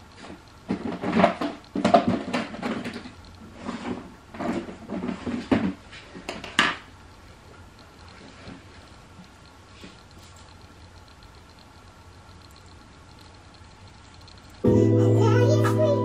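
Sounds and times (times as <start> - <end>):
knocks taps and rustles: 0.2 - 6.9.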